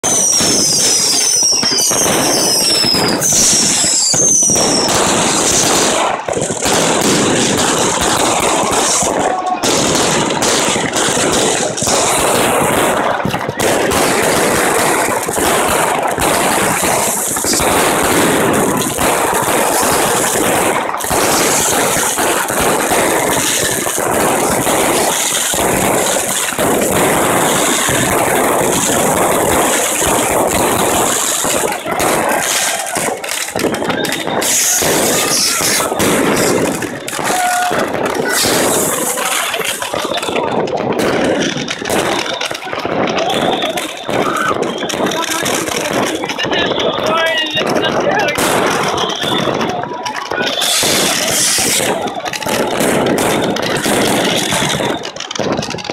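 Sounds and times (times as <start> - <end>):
fireworks crackling and banging: 0.0 - 55.9.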